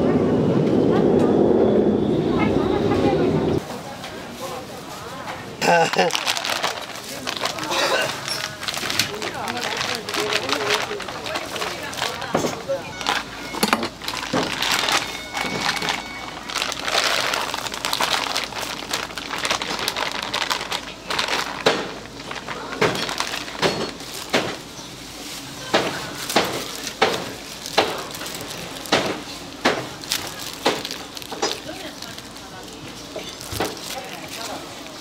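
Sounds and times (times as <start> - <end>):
cooking utensils clattering: 11.8 - 16.1.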